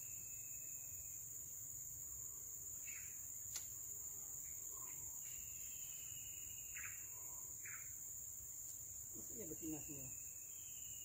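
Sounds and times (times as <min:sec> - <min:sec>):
high-pitched insect drone: 0:00.0 - 0:11.0
bird chirps: 0:02.8 - 0:03.2, 0:04.4 - 0:08.0
sharp click: 0:03.5 - 0:03.7.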